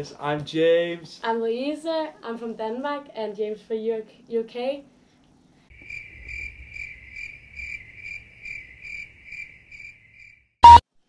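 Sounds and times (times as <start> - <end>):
cricket chirping: 5.7 - 10.8.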